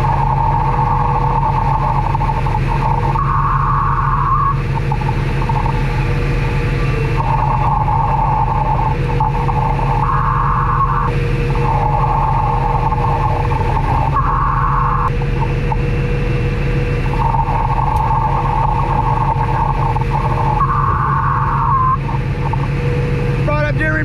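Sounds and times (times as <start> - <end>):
air compressor engine running: 0.0 - 24.0
high whine: 0.0 - 24.0.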